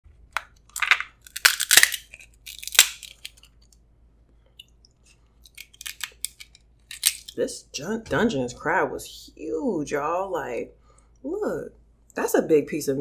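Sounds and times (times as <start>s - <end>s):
crab shell cracking: 0.3s - 3.8s, 5.4s - 7.4s.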